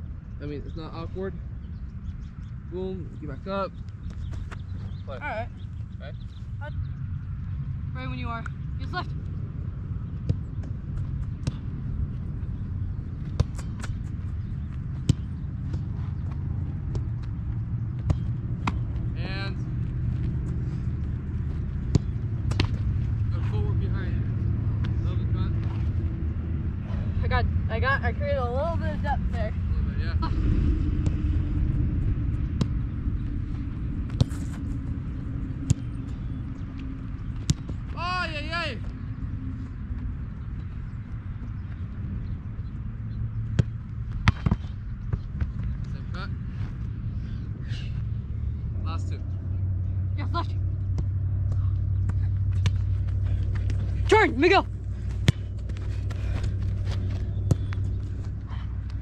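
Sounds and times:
steady low rumble: 0.0 - 59.0
soccer balls being kicked: 10.0 - 19.2, 20.0 - 25.8, 32.5 - 38.0, 43.3 - 46.7, 50.8 - 59.0.

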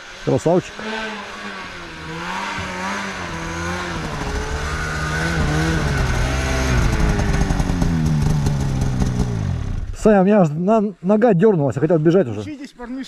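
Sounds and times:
snowmobile engine revving: 0.0 - 10.4.

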